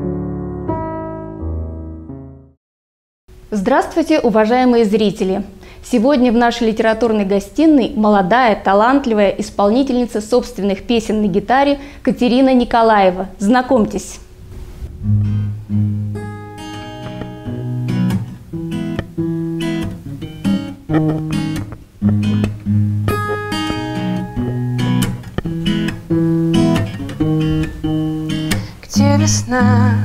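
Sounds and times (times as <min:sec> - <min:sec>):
acoustic guitar strummed and picked: 0:14.5 - 0:30.0.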